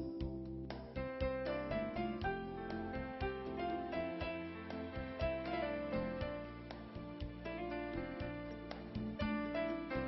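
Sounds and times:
gentle instrumental music: 0.0s - 10.0s.

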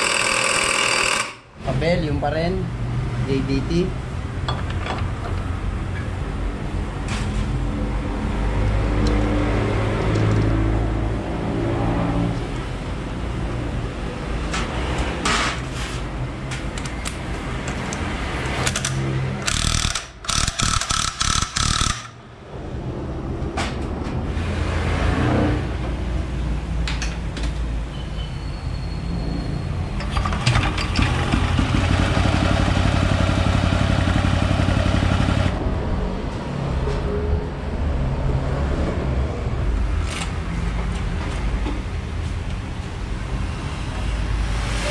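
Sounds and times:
rapid mechanical rattling: 19.4s - 22.2s.

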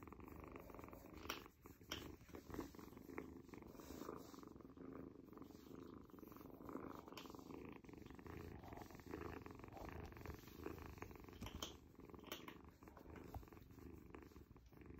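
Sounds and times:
kitten purring: 0.0s - 14.9s
faint clicks: 10.9s - 13.5s.

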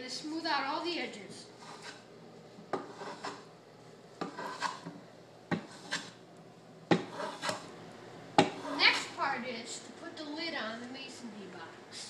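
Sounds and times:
hand plane shaving wood: 2.8s - 3.4s, 4.2s - 4.8s, 5.6s - 6.1s, 7.0s - 7.6s.

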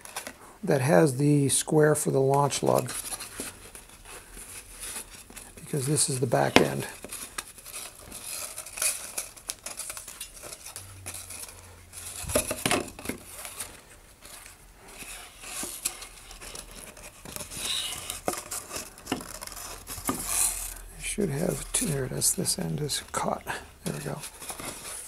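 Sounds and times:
paper tubes rustling and knocking: 1.8s - 25.0s.

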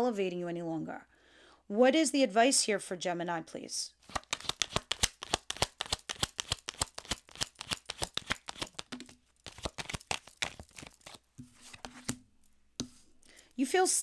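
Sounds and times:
cards being shuffled: 4.0s - 12.2s.

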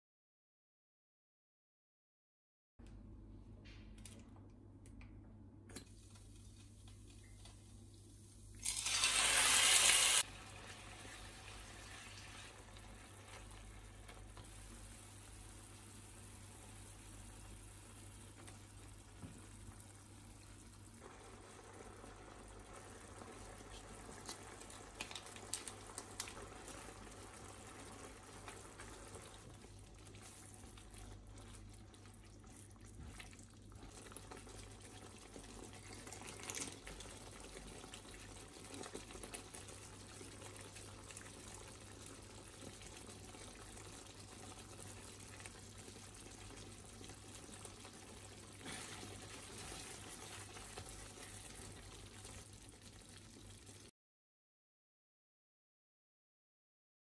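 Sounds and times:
curry bubbling in a pan: 10.2s - 53.9s.

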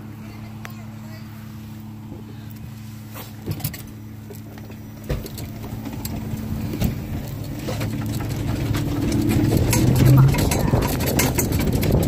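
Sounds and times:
golf cart humming: 0.0s - 12.0s
knocks and rattles: 3.4s - 12.0s.

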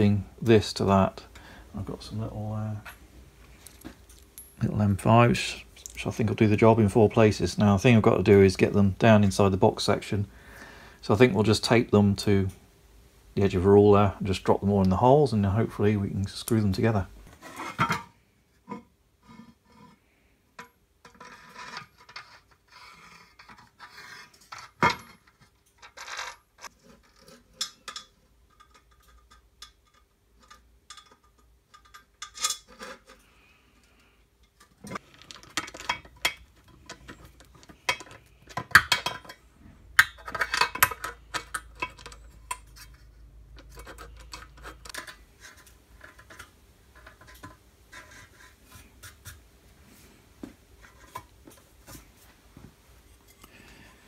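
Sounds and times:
metal parts clinking and scraping: 20.6s - 33.3s, 34.4s - 48.2s.

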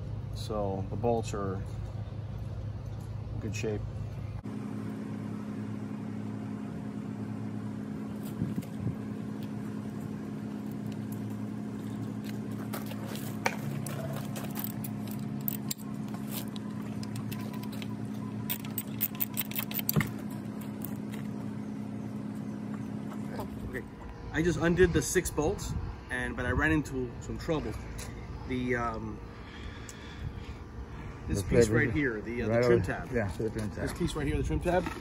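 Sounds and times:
steady low hum: 0.0s - 35.0s
metallic clicks of tools: 14.4s - 20.1s.

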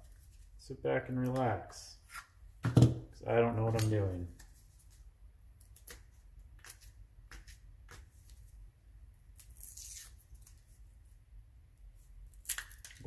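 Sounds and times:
wrapping crinkling tear: 9.4s - 10.7s.

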